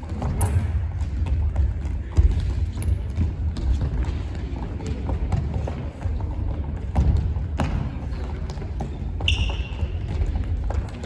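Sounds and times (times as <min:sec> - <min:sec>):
ball dribbled and kicked on wooden floor: 0:00.0 - 0:11.0
shoe squeak on floor: 0:09.2 - 0:10.0.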